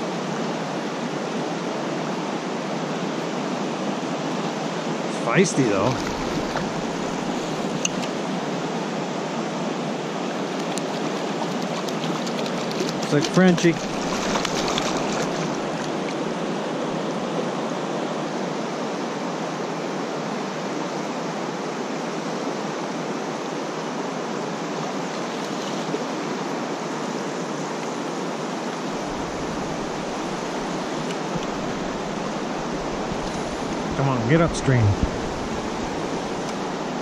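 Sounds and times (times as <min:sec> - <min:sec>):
shallow creek rushing over stones: 0:00.0 - 0:37.0
water splashing: 0:05.5 - 0:08.2, 0:10.3 - 0:16.4.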